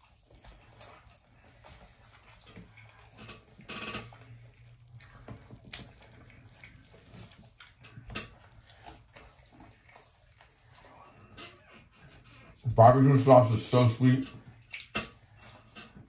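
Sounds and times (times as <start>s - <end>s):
wet chewing and lip-smacking: 0.0s - 12.7s, 14.3s - 16.0s.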